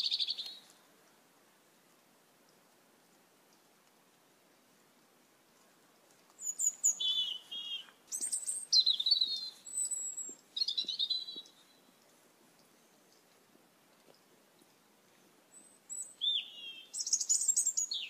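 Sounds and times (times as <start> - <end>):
starlings chirping and whistling: 6.4 - 11.5, 15.9 - 18.0.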